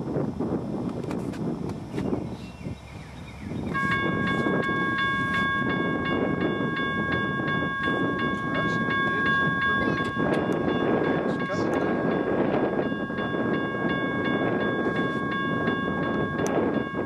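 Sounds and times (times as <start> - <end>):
freight train rumble: 0.0 - 17.0
crossing signal bell clanging: 3.7 - 17.0.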